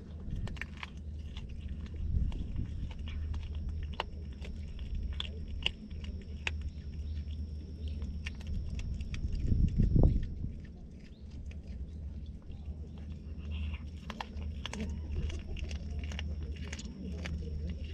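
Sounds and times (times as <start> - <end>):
cat chewing and crunching fish: 0.0 - 17.9
steady low rumble: 0.0 - 17.9.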